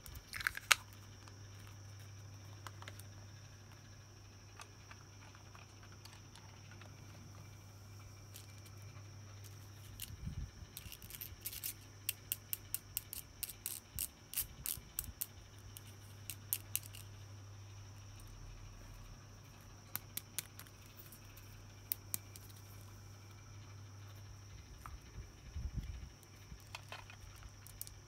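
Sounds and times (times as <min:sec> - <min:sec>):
plastic toy pieces clicking: 0:10.8 - 0:17.0
low hum: 0:14.5 - 0:28.0.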